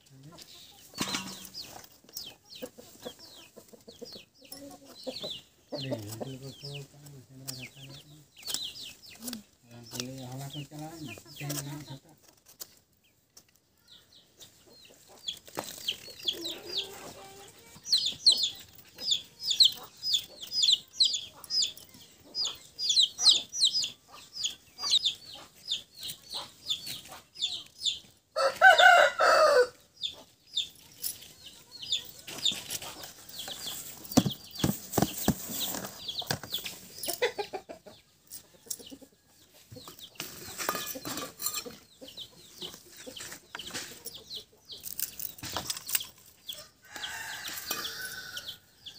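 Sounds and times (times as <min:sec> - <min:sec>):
chickens chirping: 0:00.0 - 0:48.9
rooster crowing: 0:28.4 - 0:29.8, 0:46.8 - 0:48.7.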